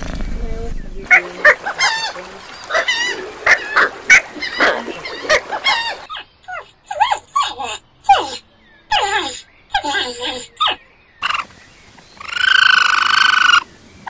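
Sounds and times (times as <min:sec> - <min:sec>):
hedgehog squeaking whimpers: 0:04.5 - 0:10.8.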